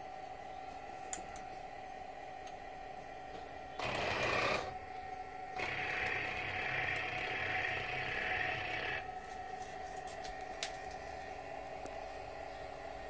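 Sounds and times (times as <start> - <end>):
faint steady hum: 0.0 - 13.0
electric whirring of toy tank: 3.8 - 4.8, 5.6 - 9.0.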